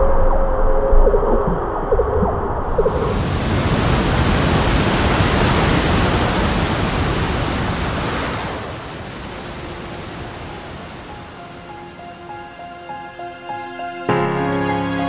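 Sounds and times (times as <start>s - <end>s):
ocean wave breaking: 2.6s - 13.7s.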